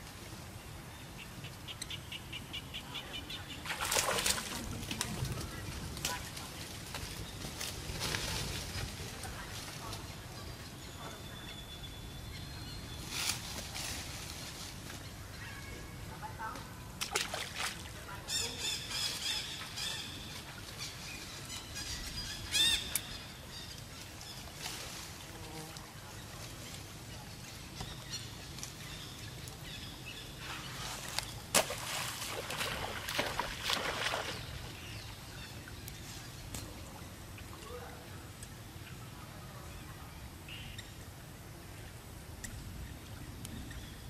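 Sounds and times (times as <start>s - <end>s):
outdoor ambience: 0.0s - 44.0s
splashing in water: 3.6s - 5.4s, 17.0s - 18.0s, 30.7s - 34.8s.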